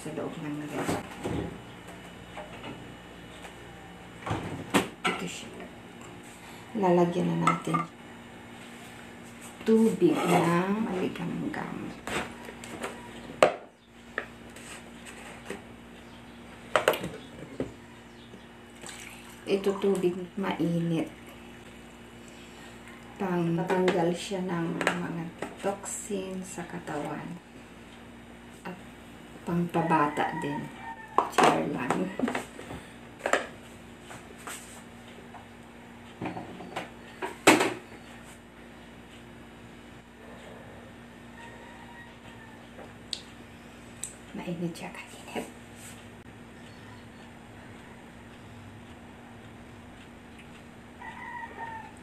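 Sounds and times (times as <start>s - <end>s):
knocks and clicks of kitchen items: 4.2s - 5.3s, 12.0s - 14.3s, 16.7s - 17.8s, 24.8s - 25.6s, 31.1s - 33.6s, 36.2s - 37.9s.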